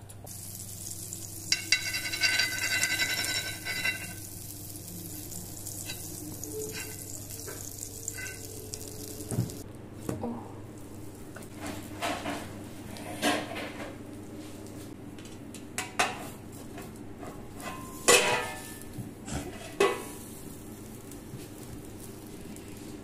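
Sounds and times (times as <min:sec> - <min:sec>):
oil sizzling in frying pan: 0:00.3 - 0:09.6, 0:17.8 - 0:23.0
metal spoon clinking on pan: 0:01.4 - 0:04.3, 0:06.7 - 0:08.5.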